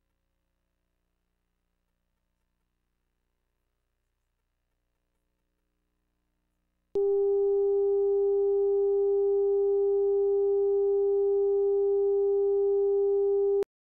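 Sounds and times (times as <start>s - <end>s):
steady electronic tone: 7.0s - 13.6s.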